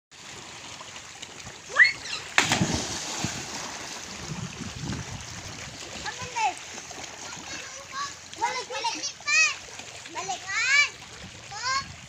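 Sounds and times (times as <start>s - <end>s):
water churning and lapping: 0.1s - 12.0s
splash into water: 0.2s - 8.6s
child crying out: 1.7s - 2.3s.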